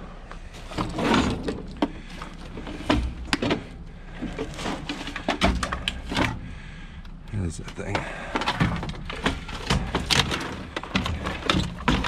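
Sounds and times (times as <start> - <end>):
sharp plastic clicks and knocks: 7.8 - 12.0
dull thuds: 7.9 - 12.0.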